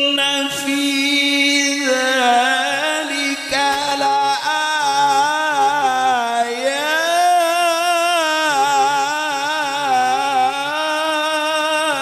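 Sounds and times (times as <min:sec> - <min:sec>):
man reciting melodically into a microphone: 0:00.0 - 0:12.0.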